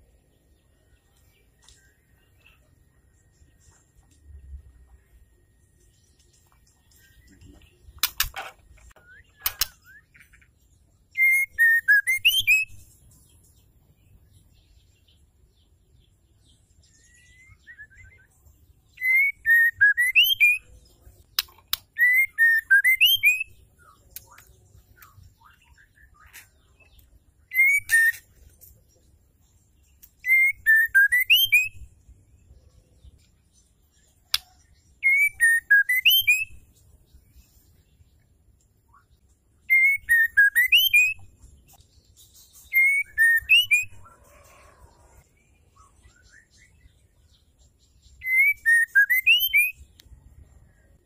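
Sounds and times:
sharp clicks: 8.0s - 9.8s
bird singing whistled phrase: 11.2s - 12.8s, 17.1s - 18.3s, 19.0s - 20.7s, 22.0s - 23.6s, 27.5s - 28.3s, 30.2s - 31.8s, 34.4s - 36.6s, 39.7s - 41.2s, 42.7s - 44.0s, 48.2s - 49.8s.

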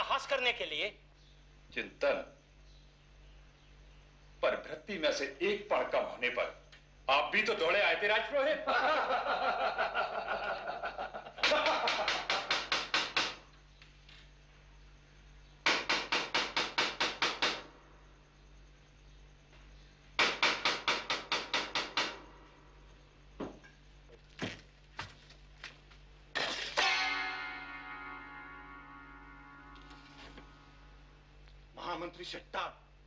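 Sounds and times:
knocks on door: 15.7s - 17.7s, 20.2s - 22.3s, 23.4s - 23.6s
heavy wooden door pounded: 20.2s - 22.4s.

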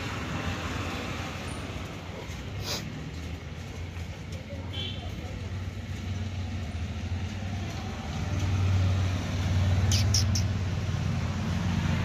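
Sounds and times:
dog squeaks: 9.8s - 10.6s.

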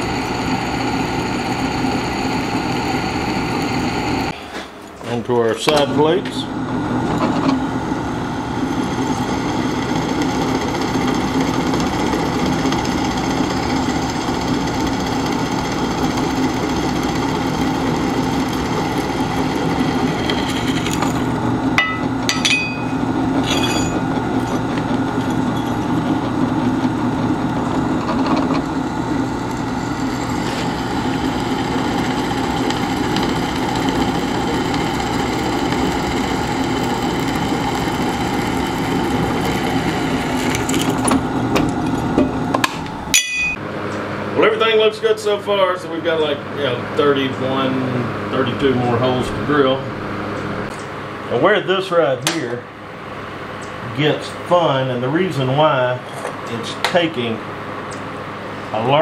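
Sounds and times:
drill press drilling steel: 0.0s - 4.4s, 5.7s - 43.6s.

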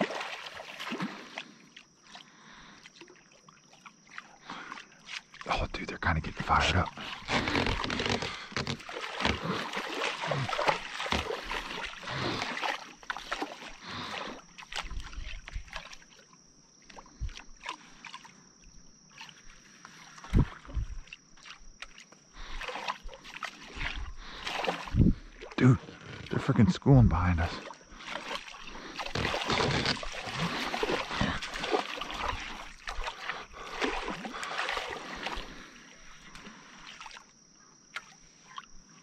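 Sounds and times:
water splashing around a boat: 0.0s - 39.0s.

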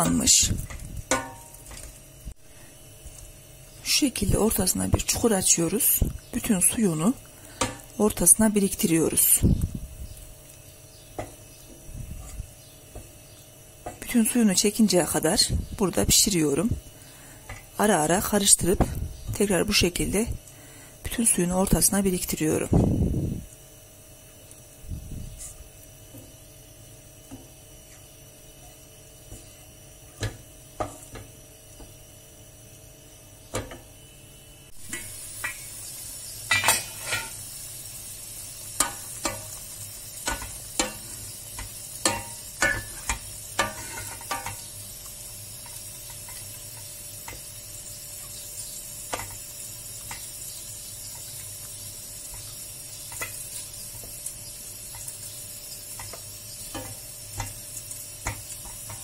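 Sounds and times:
meat simmering hiss: 0.0s - 59.0s
wooden spoon knocking on pot: 30.2s - 31.9s.

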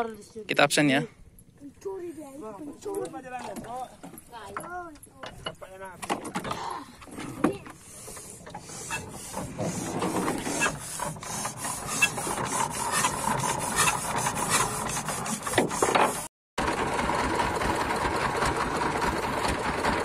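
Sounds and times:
boat engine clattering: 2.8s - 20.0s
knocks and scraping: 3.0s - 16.3s.

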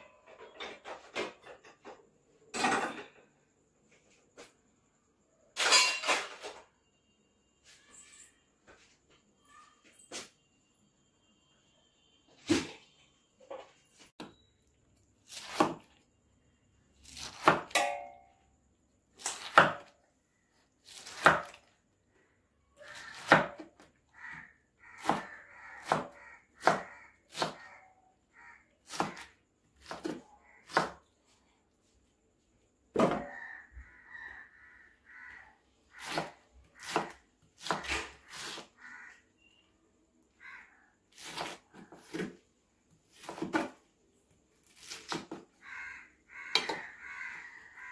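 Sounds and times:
knife chopping on wooden board: 15.3s - 15.9s, 17.1s - 17.9s, 19.2s - 19.9s, 21.0s - 21.6s, 23.0s - 23.6s, 25.0s - 27.7s, 28.9s - 31.0s, 36.0s - 38.7s, 41.2s - 42.4s, 43.2s - 43.8s.

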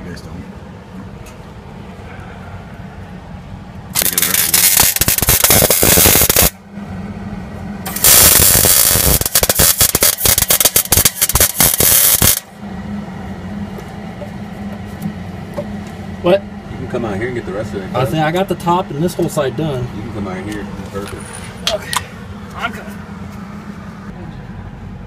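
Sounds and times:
steady low hum: 0.0s - 25.0s
welding arc crackling: 3.9s - 6.6s, 7.8s - 12.5s.

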